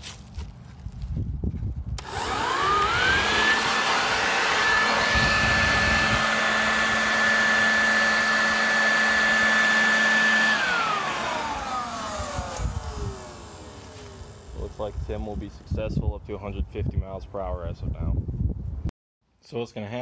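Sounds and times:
electric blower motor whine: 2.0s - 15.1s.

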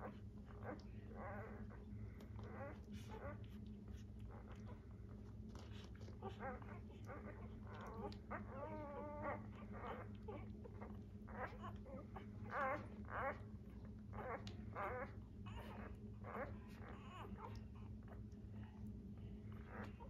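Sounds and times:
faint steady hum: 0.0s - 20.0s
puppies squeaking and grunting: 0.0s - 20.0s
puppy whimpering: 0.0s - 20.0s.

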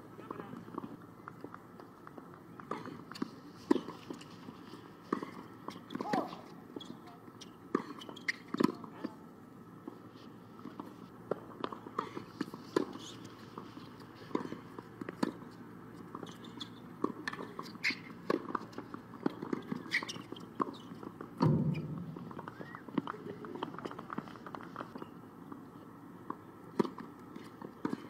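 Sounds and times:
tennis balls bouncing: 10.6s - 25.6s
loud thud: 21.4s - 22.4s
footsteps on hard court: 21.4s - 23.0s.

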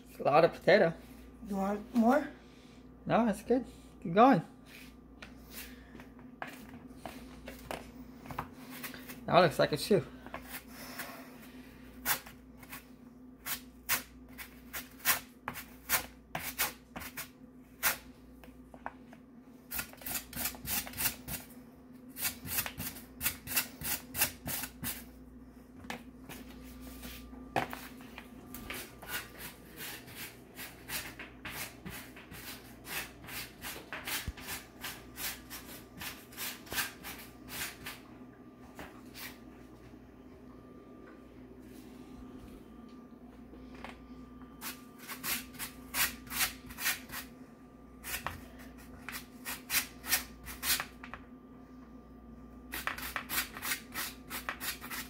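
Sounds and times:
potato grating on metal grater: 19.7s - 21.5s, 22.2s - 25.0s, 44.6s - 47.3s, 49.1s - 50.9s, 52.7s - 55.0s.

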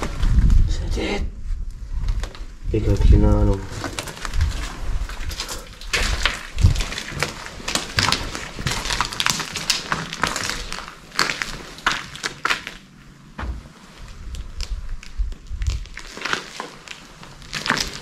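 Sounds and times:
footsteps crunching over rubble: 2.0s - 18.0s.

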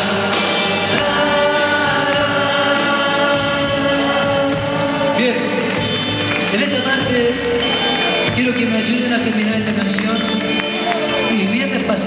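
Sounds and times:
person singing long notes: 0.0s - 6.2s
live band playing: 0.0s - 12.0s.

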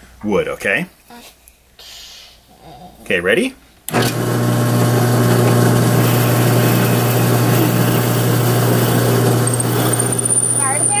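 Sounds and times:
drill bit cutting wood: 3.9s - 11.0s
drill press motor hum: 3.9s - 11.0s.

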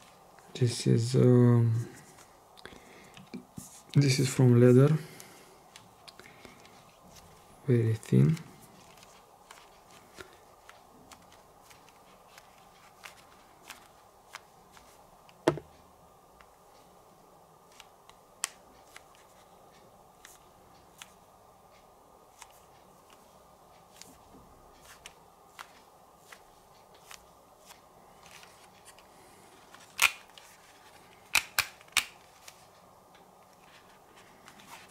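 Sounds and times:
faint room hiss: 0.0s - 34.9s
plastic headphones clicking and tapping: 8.2s - 15.7s, 29.7s - 33.8s.

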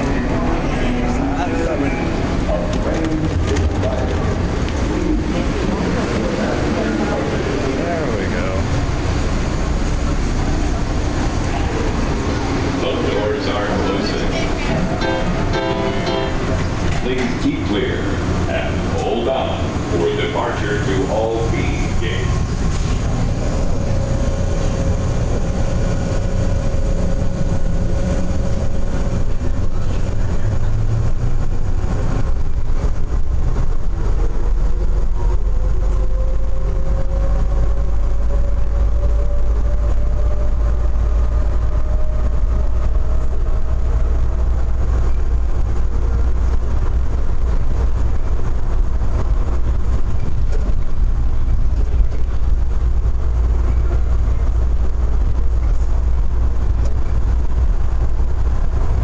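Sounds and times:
train rumbling in tunnel: 0.0s - 59.0s.

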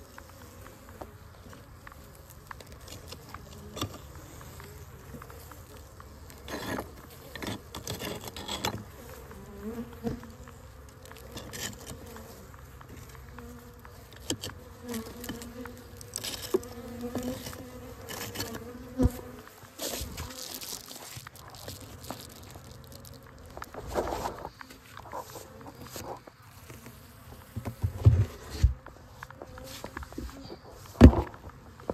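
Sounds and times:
honeybees buzzing: 0.0s - 31.9s
sugar bricks scraping on wood: 6.5s - 8.8s, 14.1s - 18.6s.

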